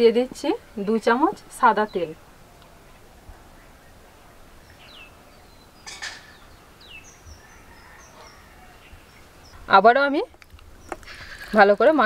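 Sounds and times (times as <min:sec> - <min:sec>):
faint bird calls: 0:02.6 - 0:09.7.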